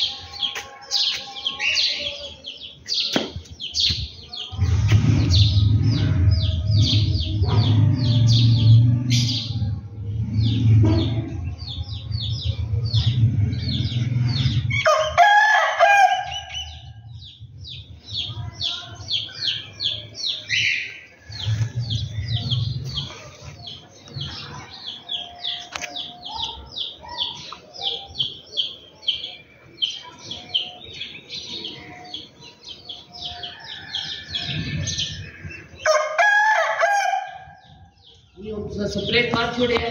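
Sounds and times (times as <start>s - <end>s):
small birds chirping: 0.0s - 15.1s, 16.2s - 36.2s, 37.2s - 39.9s
low rumble: 4.5s - 14.8s, 21.2s - 24.4s
rooster crowing: 14.8s - 16.5s, 33.2s - 35.0s, 35.8s - 37.5s.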